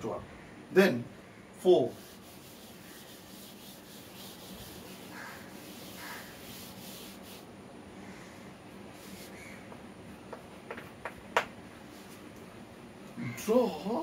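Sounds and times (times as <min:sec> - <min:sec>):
eraser rubbing on chalkboard: 0:01.9 - 0:07.5, 0:09.0 - 0:09.4.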